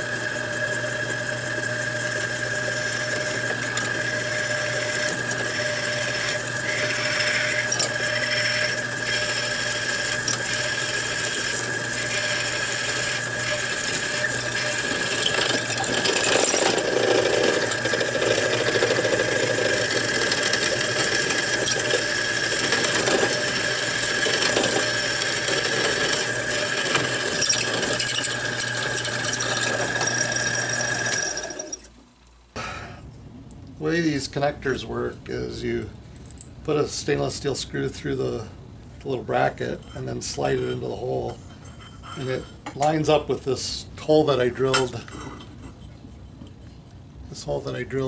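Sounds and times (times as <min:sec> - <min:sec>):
drill bit cutting metal: 0:00.0 - 0:31.9
drill press motor hum and whine: 0:00.0 - 0:32.6.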